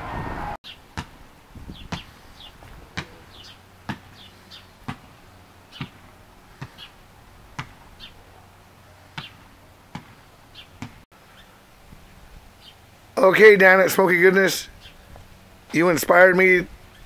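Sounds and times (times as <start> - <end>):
small bird chirping: 3.3 - 4.9, 5.7 - 6.0, 8.0 - 8.2, 10.5 - 11.5, 12.6 - 12.8.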